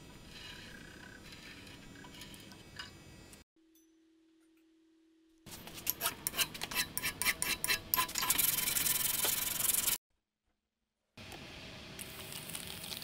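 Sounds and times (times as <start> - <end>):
hand file rasping on metal: 5.9 - 8.8
sandpaper rubbing: 8.2 - 10.0.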